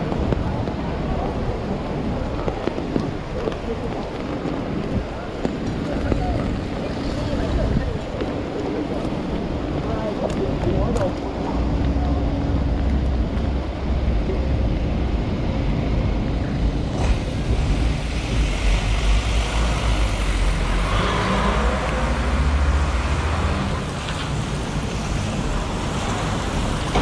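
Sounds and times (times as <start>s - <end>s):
traffic rumble: 0.0s - 27.0s
tyres hissing on wet road: 16.7s - 27.0s.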